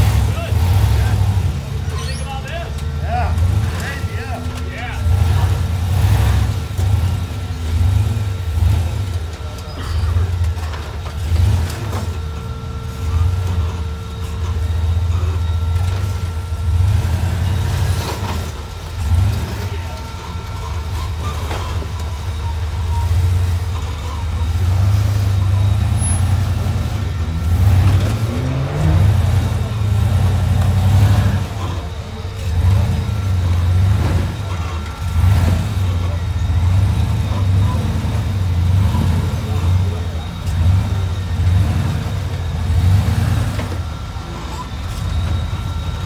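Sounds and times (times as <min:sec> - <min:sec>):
buggy engine revving under load: 0:00.0 - 0:46.0.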